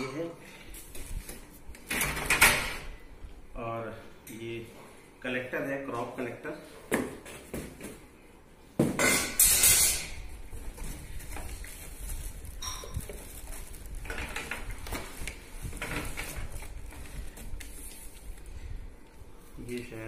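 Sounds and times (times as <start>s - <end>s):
plastic wrapping crinkling: 11.0s - 18.5s.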